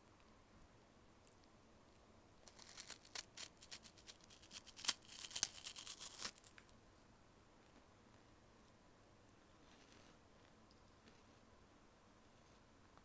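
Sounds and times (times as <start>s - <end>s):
crunchy snack being chewed: 2.4s - 6.6s.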